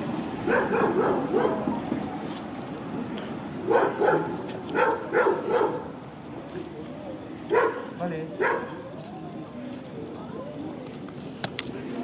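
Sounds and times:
dog barking: 0:00.5 - 0:01.7, 0:03.7 - 0:05.9, 0:07.5 - 0:08.8.

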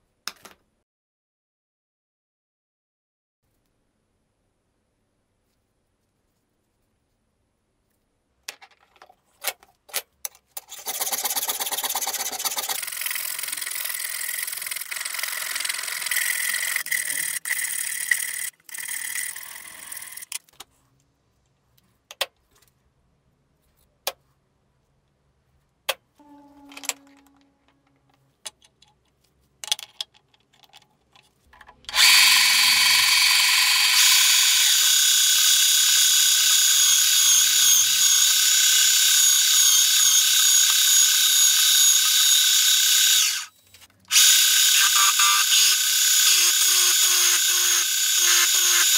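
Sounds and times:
drill press drilling metal: 0:31.9 - 0:43.5, 0:44.1 - 0:48.9
rasping machine noise: 0:31.9 - 0:48.9.

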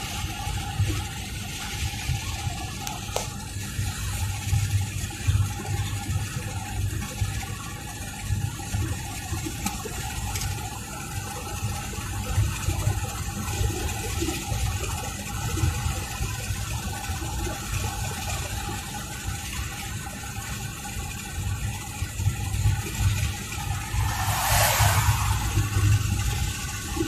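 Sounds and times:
car engine and tyre rumble: 0:23.5 - 0:26.6.

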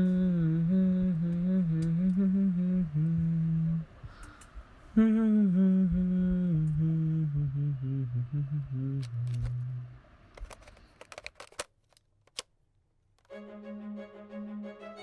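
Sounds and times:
man humming a slow tune: 0:00.0 - 0:04.0, 0:04.9 - 0:10.0.

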